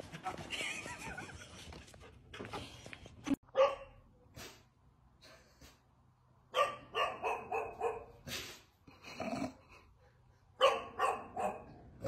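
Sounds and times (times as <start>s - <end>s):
dog barking: 3.5s - 4.0s, 6.5s - 8.2s, 10.6s - 11.8s.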